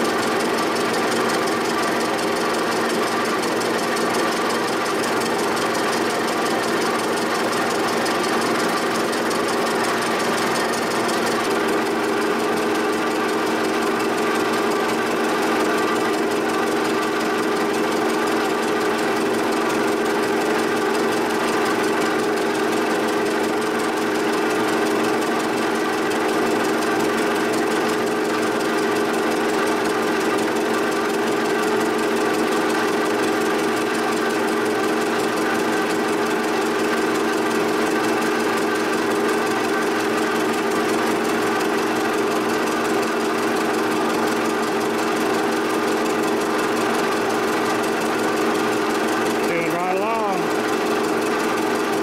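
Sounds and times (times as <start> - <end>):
milling machine humming and cutting: 0.0 - 52.0.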